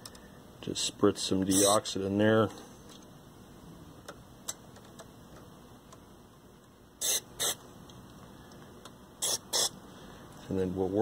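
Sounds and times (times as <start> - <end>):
aerosol spray hissing: 7.0 - 7.6, 9.2 - 9.7.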